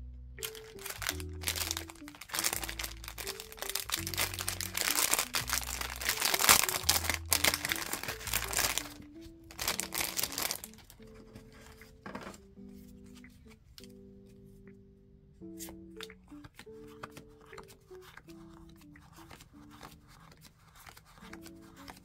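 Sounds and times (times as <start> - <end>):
soft background music: 0.0 - 22.0
plastic bag crinkling: 0.4 - 11.7.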